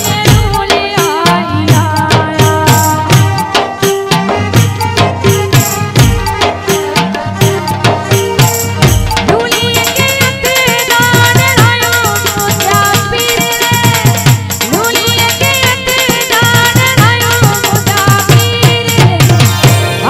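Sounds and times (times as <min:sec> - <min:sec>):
fast percussion with low drum beats: 0:00.0 - 0:20.0
woman singing into a microphone: 0:00.0 - 0:20.0.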